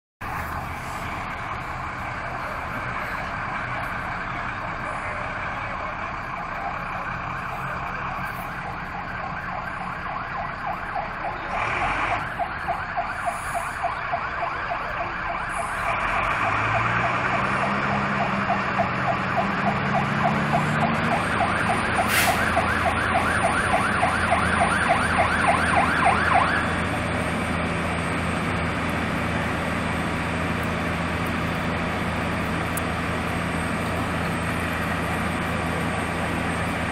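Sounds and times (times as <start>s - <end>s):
emergency siren yelping: 0.3s - 27.3s
heavy truck engine revving: 10.5s - 14.0s, 14.8s - 36.9s.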